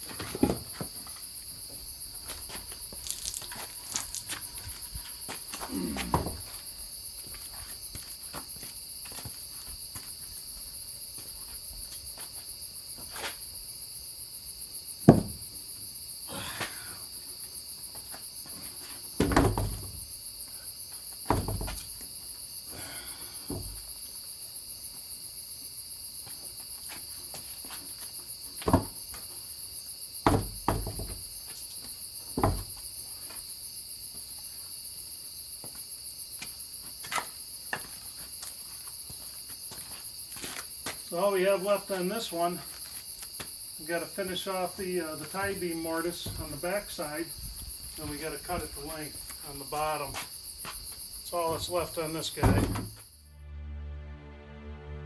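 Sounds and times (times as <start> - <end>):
crickets chirping: 0.0 - 54.6
heavy wooden knocks: 15.1 - 15.4.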